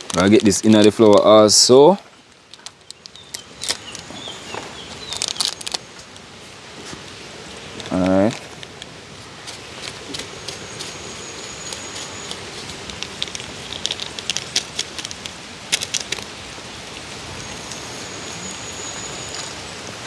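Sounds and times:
steady hiss: 0:00.0 - 0:20.0
plastic sachet crinkling: 0:02.5 - 0:04.1, 0:04.9 - 0:06.2, 0:11.6 - 0:16.3.

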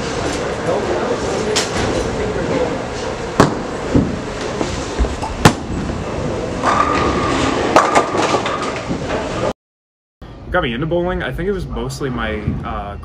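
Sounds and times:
bowling balls rolling: 0:00.0 - 0:09.5
bowling pins clattering: 0:03.4 - 0:09.5.

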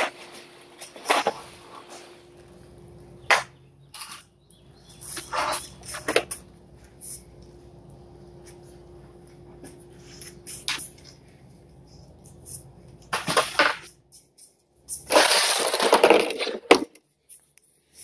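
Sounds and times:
rustling scrape: 0:00.0 - 0:02.2, 0:05.0 - 0:07.3
faint steady hum: 0:00.0 - 0:18.0.

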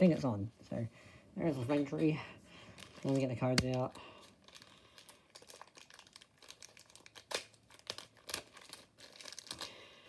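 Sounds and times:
packaging crinkling and rustling: 0:02.7 - 0:10.0.

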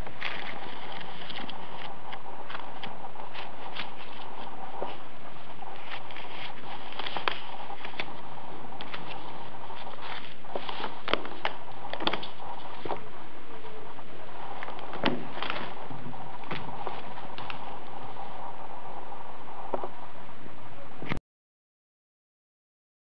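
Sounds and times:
book pages crackling: 0:00.0 - 0:19.0
steady hiss: 0:00.0 - 0:21.1.

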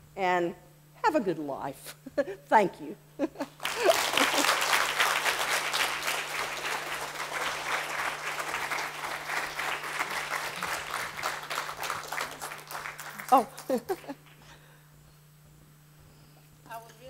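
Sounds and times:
audience applauding: 0:03.5 - 0:14.4.

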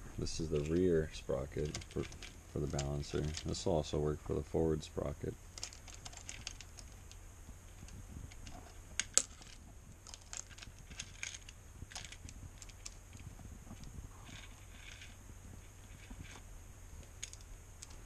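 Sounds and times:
chain clinking against sprocket: 0:00.4 - 0:03.7, 0:07.8 - 0:16.4.

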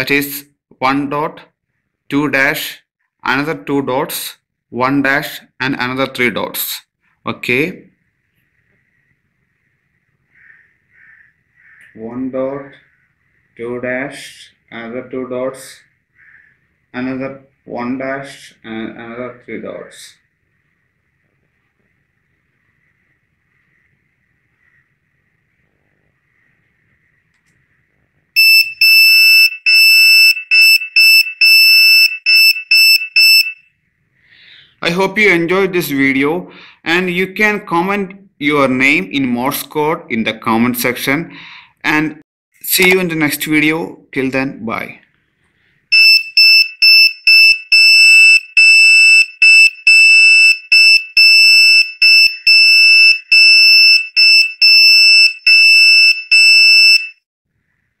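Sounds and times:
piezo buzzer beeping morse code: 0:28.4 - 0:33.7, 0:45.9 - 0:57.2.

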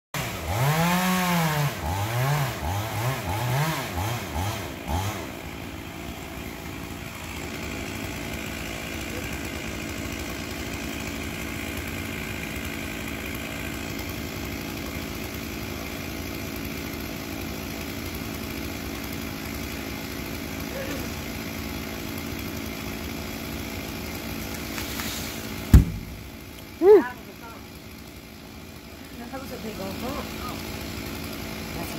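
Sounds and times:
chainsaw revving and idling: 0:00.2 - 0:31.9
tree trunk thud on ground: 0:25.7 - 0:26.3.

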